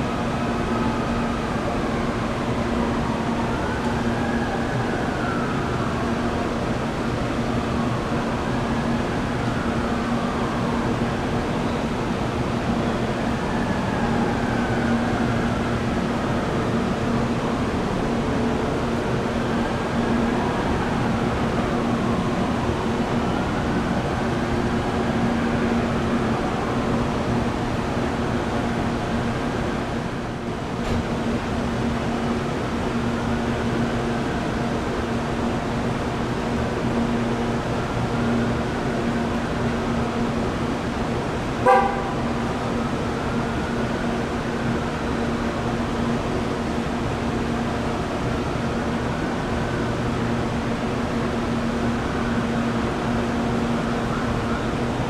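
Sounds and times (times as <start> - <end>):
short horn-like toot: 41.6 - 42.2.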